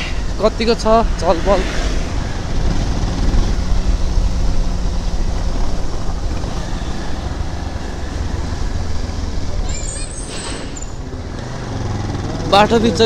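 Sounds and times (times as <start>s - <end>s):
wind rushing over microphone: 0.0s - 9.7s
motorcycle engine hum: 0.0s - 13.0s.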